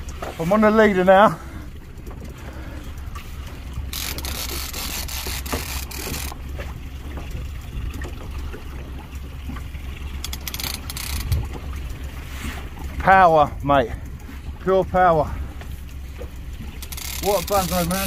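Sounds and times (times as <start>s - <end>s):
wind buffeting microphone: 11.1s - 11.9s.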